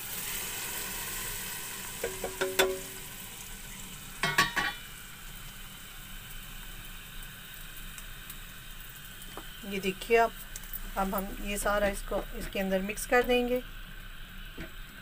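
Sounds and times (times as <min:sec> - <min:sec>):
hot oil sizzling: 0:00.0 - 0:15.0
metallic clanks of pan on pot: 0:02.0 - 0:03.0, 0:04.2 - 0:04.8.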